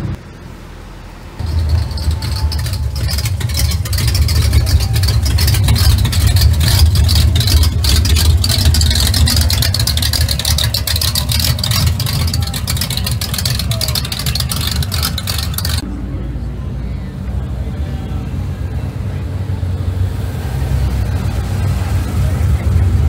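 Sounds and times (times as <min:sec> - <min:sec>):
car exhaust burbling: 0:01.0 - 0:15.9.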